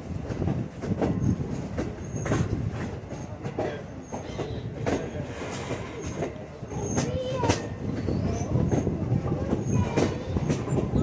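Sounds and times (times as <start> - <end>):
railcar rumbling on track: 0.0 - 11.0
wheels clacking and knocking: 0.2 - 11.0.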